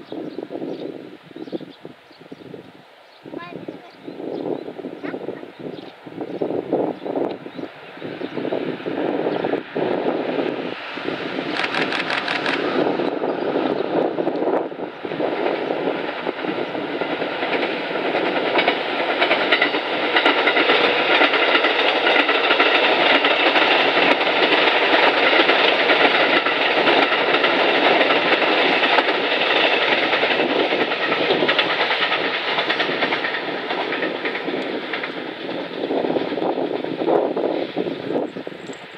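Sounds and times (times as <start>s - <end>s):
diesel train passing: 0.0s - 38.9s
wheels clicking over rail joints: 17.0s - 36.9s.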